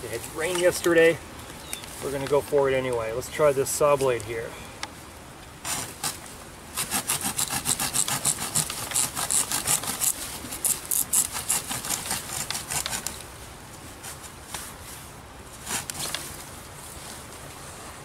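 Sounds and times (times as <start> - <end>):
machete sawing wet branch: 5.6 - 13.2, 15.6 - 16.4.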